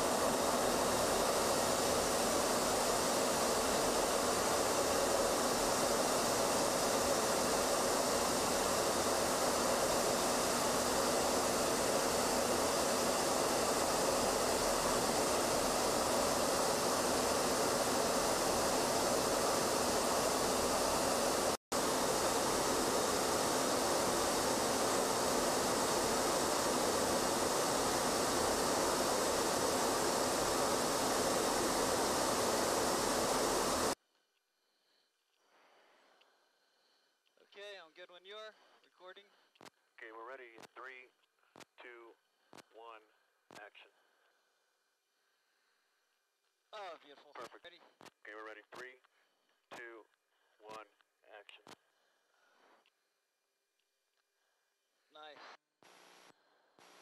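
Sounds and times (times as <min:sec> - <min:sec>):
jet aircraft roar: 0:00.0 - 0:34.0.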